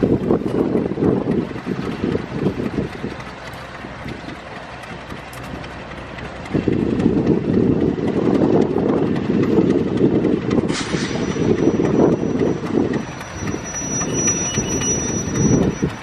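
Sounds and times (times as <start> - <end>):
diesel railcar rumbling: 0.0 - 16.0.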